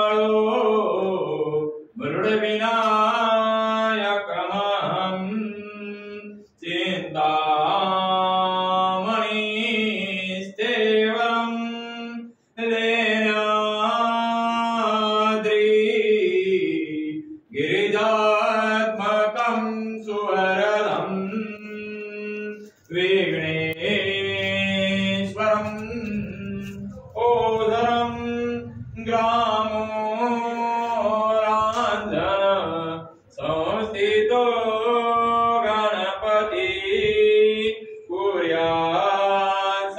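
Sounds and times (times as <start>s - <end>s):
person chanting melodically: 0.0s - 39.9s
steady low hum: 23.4s - 34.0s.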